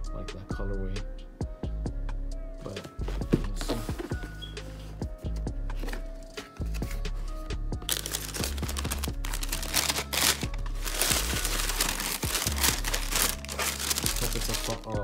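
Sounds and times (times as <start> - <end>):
background music: 0.0 - 15.0
paper crinkling and rustling: 7.8 - 15.0.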